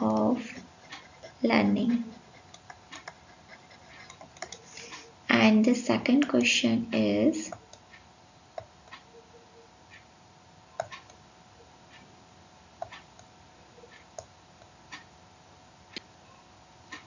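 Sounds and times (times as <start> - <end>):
faint steady hum: 0.0 - 17.0
small clicks and taps: 2.4 - 5.0, 10.8 - 11.2, 12.8 - 13.3.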